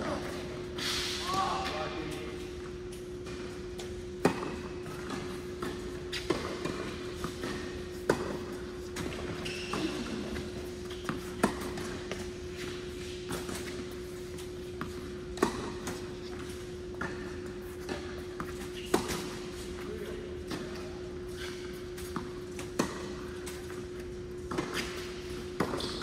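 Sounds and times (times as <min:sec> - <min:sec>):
tennis ball bouncing: 0:03.2 - 0:19.7, 0:22.0 - 0:26.0
tennis racket hitting ball: 0:04.2 - 0:19.7, 0:22.0 - 0:23.8, 0:24.4 - 0:26.0.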